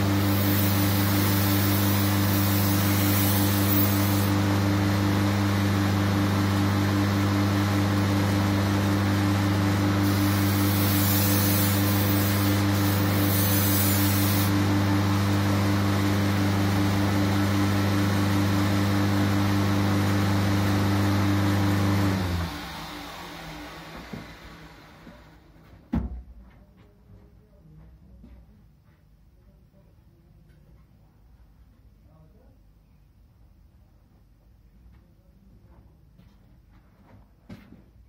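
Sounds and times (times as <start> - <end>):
blade grinding hiss: 0.0 - 4.4, 10.0 - 14.6
belt grinder motor hum: 0.0 - 7.2, 8.0 - 18.5
machine running down: 0.0 - 25.5.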